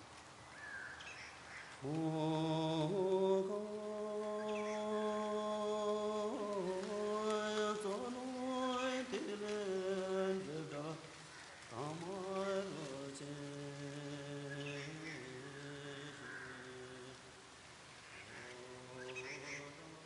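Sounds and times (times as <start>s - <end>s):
person chanting long notes: 1.8s - 11.1s.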